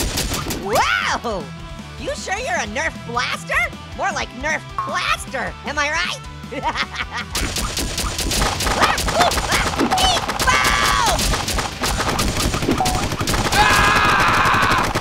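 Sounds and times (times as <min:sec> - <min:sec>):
cartoon gunfire sound effects: 0:00.0 - 0:00.8, 0:07.3 - 0:15.0
cartoon voices crying out: 0:13.5 - 0:14.9.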